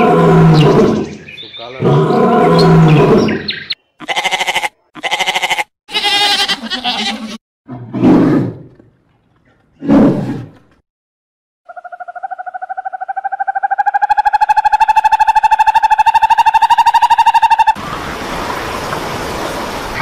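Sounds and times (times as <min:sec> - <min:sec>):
lion roaring: 0:00.0 - 0:03.5, 0:07.7 - 0:10.7
goat bleating: 0:04.0 - 0:07.4.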